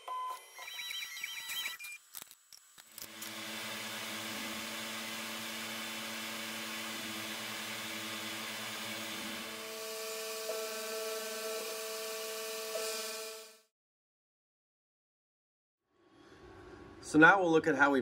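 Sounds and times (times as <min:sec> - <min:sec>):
milling machine cutting metal: 0:02.7 - 0:13.6.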